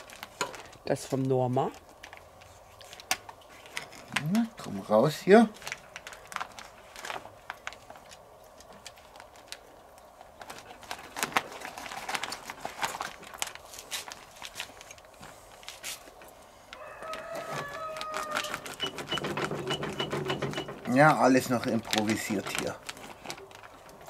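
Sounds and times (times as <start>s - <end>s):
plastic packaging crinkling: 0.0s - 24.0s
knife slitting plastic bag: 21.4s - 23.7s.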